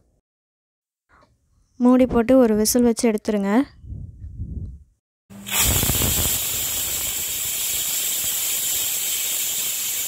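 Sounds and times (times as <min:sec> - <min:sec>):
pressure cooker steam hissing: 0:05.4 - 0:10.0.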